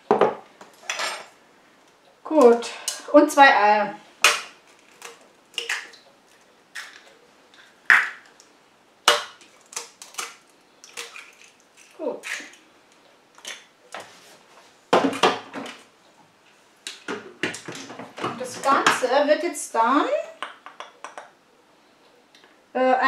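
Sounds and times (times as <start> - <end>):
eggs cracked on metal bowl: 4.2 - 6.0, 6.7 - 12.6, 20.4 - 21.4.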